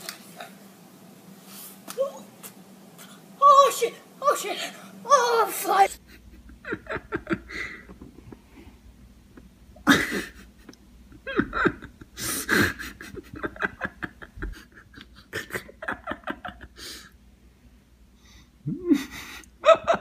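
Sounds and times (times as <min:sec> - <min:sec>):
person laughing: 0:05.8 - 0:08.7, 0:09.3 - 0:17.0, 0:18.6 - 0:20.0.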